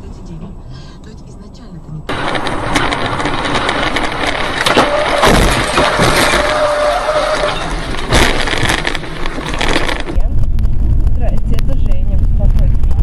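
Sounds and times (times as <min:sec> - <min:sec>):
loud road noise: 0:00.0 - 0:13.0
car crash impacts: 0:02.1 - 0:10.1.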